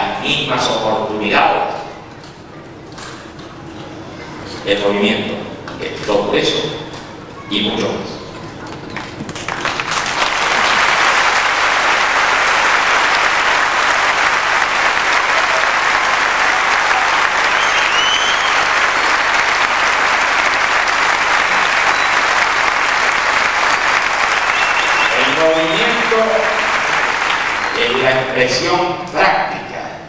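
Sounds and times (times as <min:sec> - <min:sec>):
audience applauding: 0:08.9 - 0:28.6.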